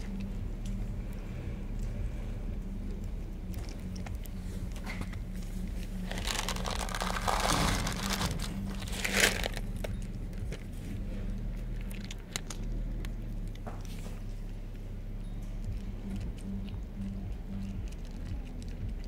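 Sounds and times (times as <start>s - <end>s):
steady low hum: 0.0s - 19.0s
cat crunching dry kibble: 2.9s - 10.7s, 11.7s - 13.6s, 15.7s - 19.0s.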